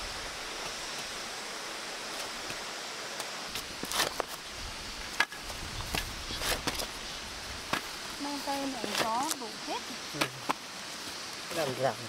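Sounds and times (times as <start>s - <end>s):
background hiss: 0.0s - 12.0s
shovel digging into soil: 3.5s - 4.4s.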